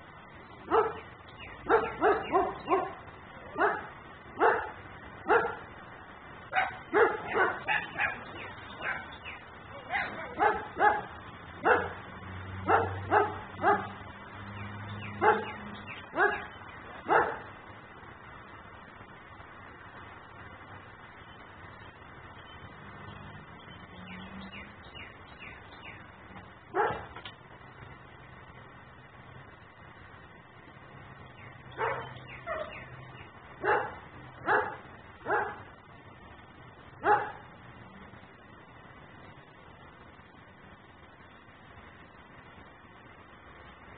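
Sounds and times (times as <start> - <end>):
dog barking: 0.7 - 1.0, 1.6 - 5.7, 6.5 - 9.2, 9.8 - 12.0, 12.6 - 14.0, 15.2 - 17.5, 26.7 - 27.2, 31.8 - 32.8, 33.6 - 35.7, 37.0 - 37.5.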